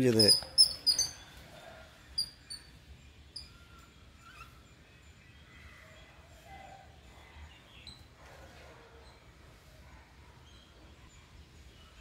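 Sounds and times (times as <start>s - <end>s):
babblers chirping: 0.0s - 1.4s.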